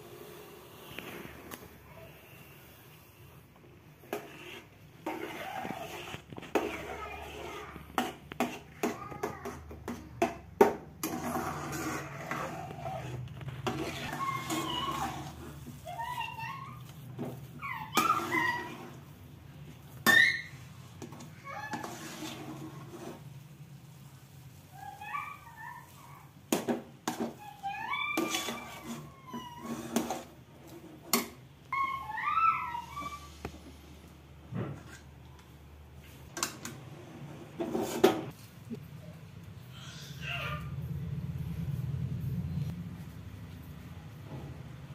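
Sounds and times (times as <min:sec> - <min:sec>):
steel spoon scraping a pan: 0:04.0 - 0:09.0, 0:11.0 - 0:17.2, 0:20.0 - 0:23.3, 0:28.2 - 0:31.3, 0:37.6 - 0:38.4.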